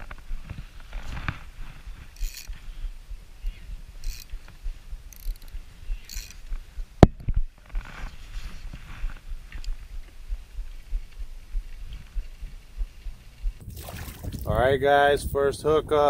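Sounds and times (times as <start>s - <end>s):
fishing reel clicking and whirring: 2.1s - 2.7s, 4.0s - 6.5s.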